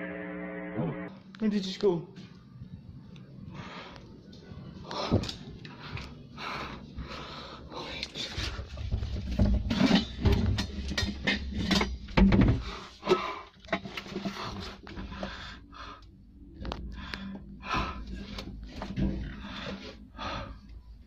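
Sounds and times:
breathing close to microphone: 3.4 - 4.2, 4.8 - 8.8, 12.5 - 20.8.

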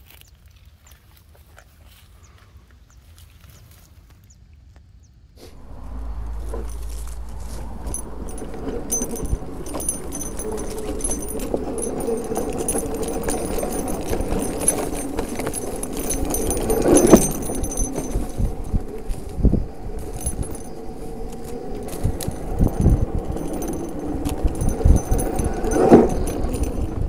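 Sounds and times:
electric motorcycle hum: 5.6 - 27.0
motorcycle rattling: 5.6 - 27.0.

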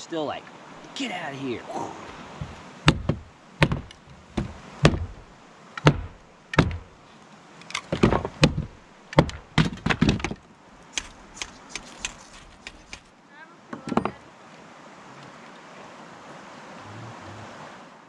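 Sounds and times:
hatchet knocking on wood: 2.4 - 5.2, 5.8 - 6.9.

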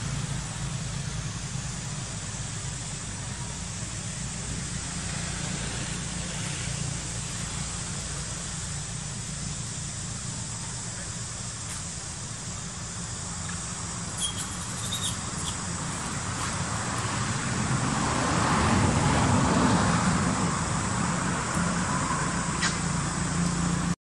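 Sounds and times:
motor vehicle passing: 13.2 - 23.9.

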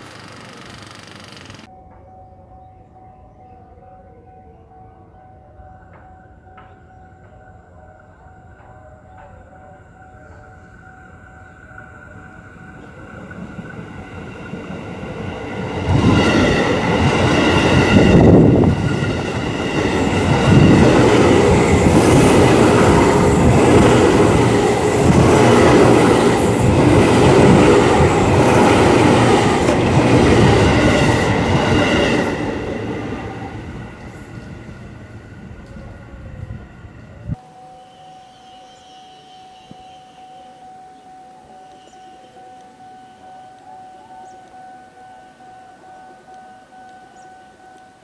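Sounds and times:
electric train passing: 0.0 - 3.6, 4.5 - 48.0.

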